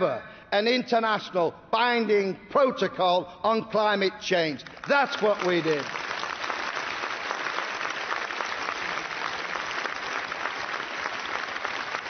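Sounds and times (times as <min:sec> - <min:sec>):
large audience applauding: 0:04.6 - 0:12.0.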